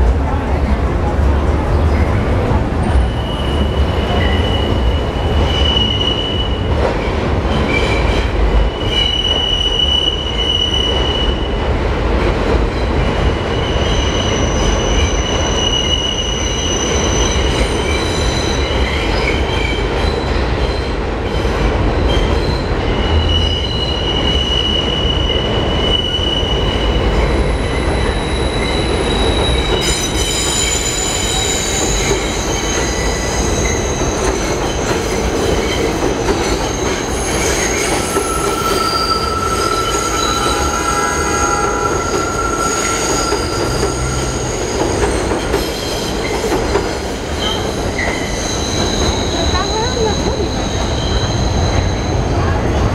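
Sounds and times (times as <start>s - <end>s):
subway train rumbling: 0.0s - 52.9s
wheels squealing: 22.4s - 52.4s.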